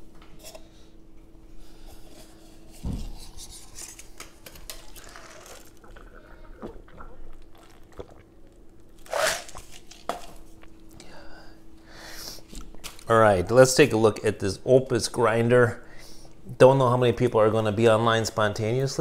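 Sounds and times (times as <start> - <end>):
faint steady hum: 0.0 - 19.0
heavy thump: 2.8 - 3.2.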